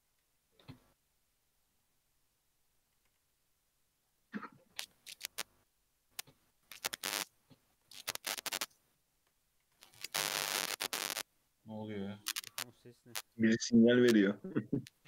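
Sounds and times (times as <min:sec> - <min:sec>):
microphone crackling static: 0:04.8 - 0:05.5, 0:06.2 - 0:07.3, 0:07.9 - 0:08.7, 0:09.8 - 0:11.3, 0:12.2 - 0:15.0
sharp clicks: 0:04.8 - 0:05.5, 0:12.2 - 0:13.3.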